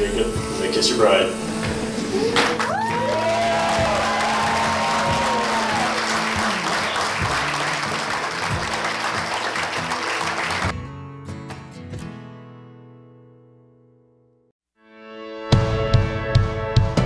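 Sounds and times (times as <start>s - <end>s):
soft background music: 0.0s - 10.4s
audience applauding: 2.3s - 10.8s.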